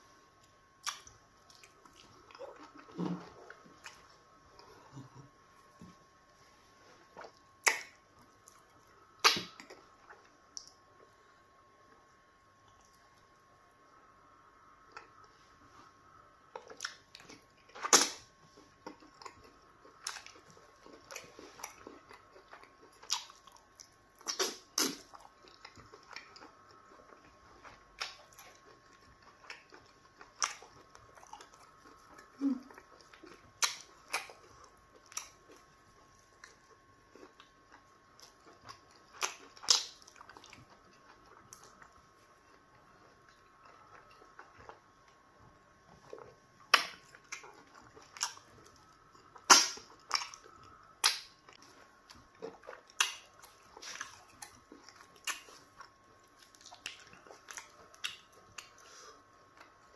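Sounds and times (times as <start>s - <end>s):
person chewing with wet smacks: 0.3s - 11.2s, 11.8s - 13.4s, 14.8s - 59.9s.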